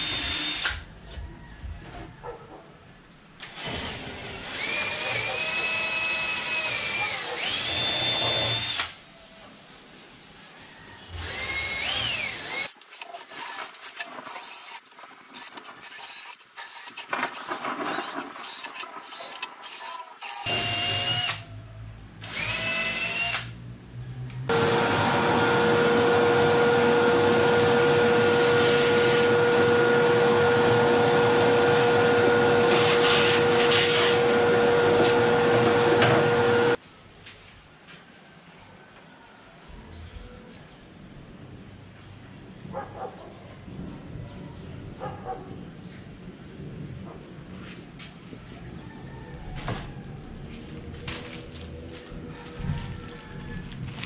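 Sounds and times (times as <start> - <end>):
cordless drill drilling into wood: 0.0 - 0.8, 3.4 - 9.0, 11.2 - 21.4, 22.2 - 23.5, 24.5 - 36.8.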